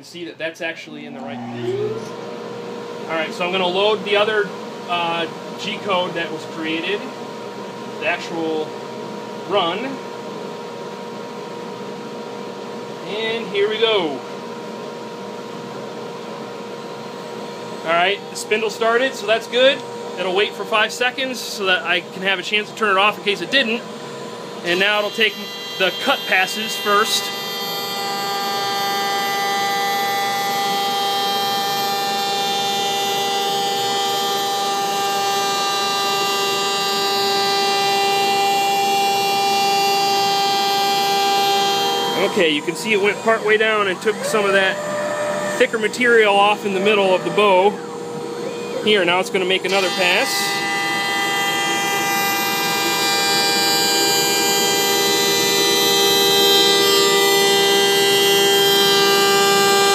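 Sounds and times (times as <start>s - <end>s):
router spindle whining: 1.0s - 2.8s, 21.8s - 59.9s.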